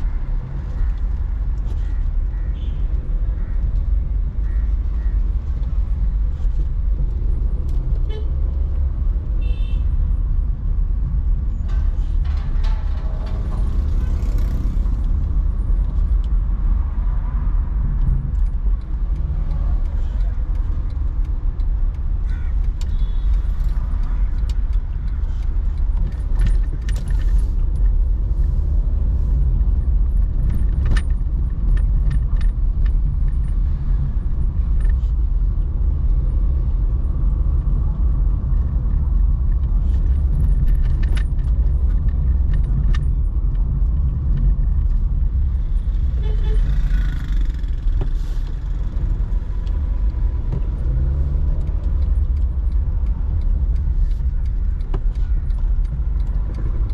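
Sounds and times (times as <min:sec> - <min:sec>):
car engine and road rumble: 0:00.0 - 0:56.9
light clicks and rattles: 0:17.8 - 0:56.9.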